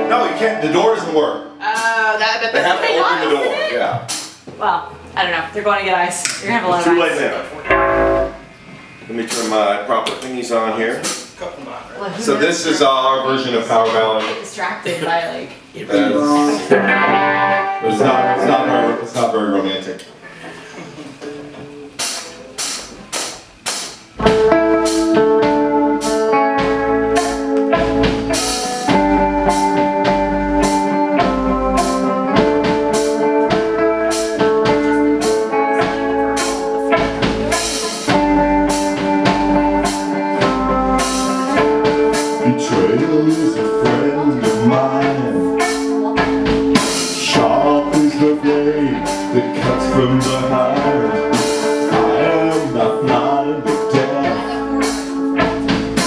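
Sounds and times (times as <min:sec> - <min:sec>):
rock band playing live: 0:00.0 - 0:02.9, 0:07.6 - 0:08.7, 0:16.0 - 0:19.1, 0:21.9 - 0:56.0
drumbeat: 0:01.6 - 0:02.8, 0:03.9 - 0:07.0, 0:07.6 - 0:09.7, 0:21.6 - 0:56.0.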